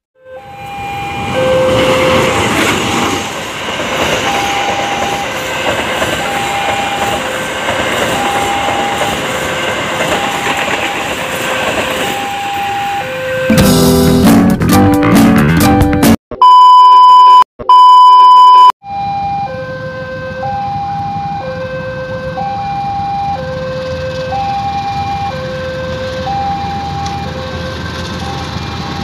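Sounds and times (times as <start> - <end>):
long loud beeps: 0.2 - 2.5, 4.2 - 9.4, 10.0 - 13.6, 16.4 - 19.5
level crossing alarm two tones: 0.2 - 2.7, 4.1 - 14.0, 16.4 - 23.6, 24.3 - 29.0
diesel locomotive rumble: 0.4 - 14.1, 20.1 - 29.0
music: 13.5 - 16.2.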